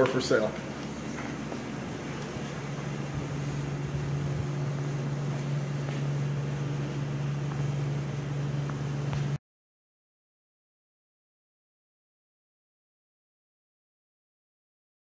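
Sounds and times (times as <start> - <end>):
low mechanical hum: 0.0 - 9.4.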